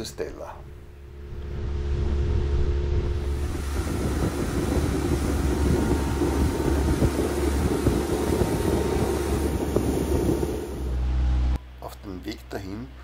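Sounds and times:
outboard motor running: 0:00.6 - 0:11.6
rush of water and air: 0:01.6 - 0:11.2.

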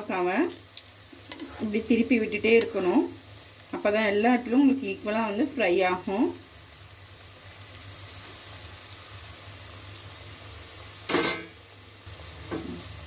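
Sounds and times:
oil sizzling in deep frying: 0:00.0 - 0:13.0
metal spoon clanking on pan: 0:11.1 - 0:11.6.

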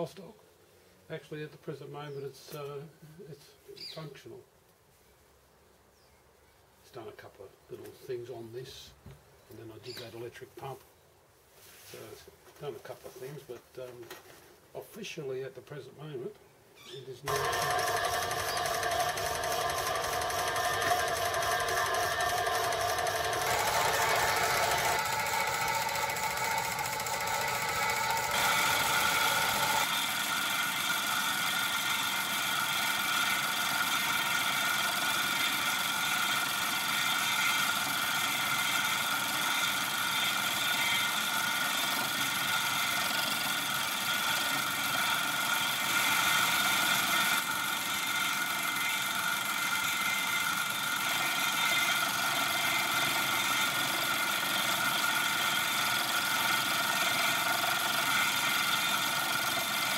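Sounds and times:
milling machine cutting metal: 0:17.3 - 0:59.9.

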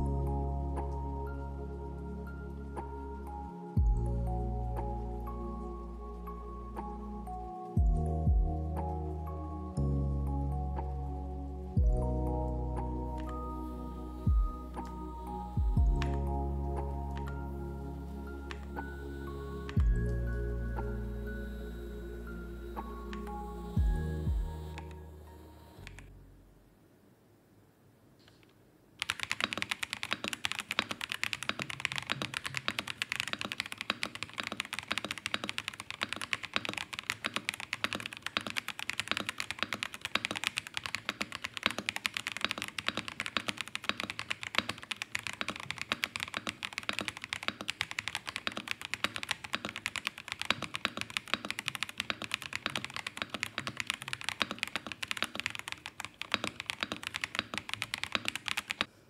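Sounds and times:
fast mechanical keyboard typing: 0:29.0 - 0:58.9.

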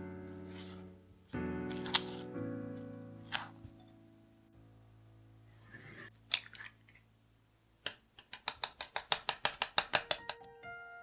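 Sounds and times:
soft music: 0:00.0 - 0:06.6, 0:09.9 - 0:11.0.

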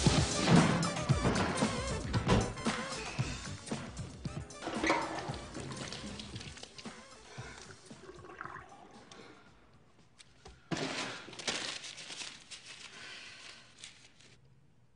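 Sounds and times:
toilet flushing: 0:00.0 - 0:09.5.

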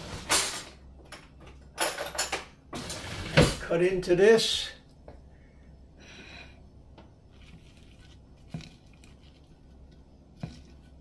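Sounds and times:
crust crackling under fork: 0:07.2 - 0:11.0.

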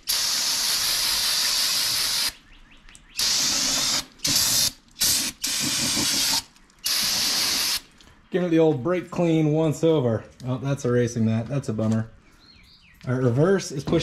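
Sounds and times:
aerosol can spraying hiss: 0:00.0 - 0:02.3, 0:03.2 - 0:07.8.

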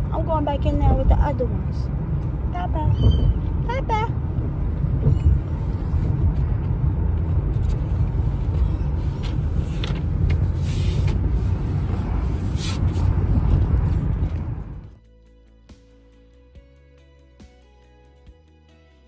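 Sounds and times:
car cabin rumble: 0:00.0 - 0:15.0.

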